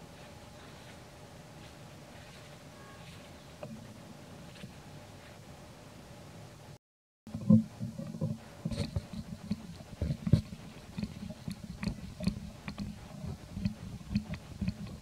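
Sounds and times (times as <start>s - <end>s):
monkey suckling mouth clicks: 8.7s - 15.0s.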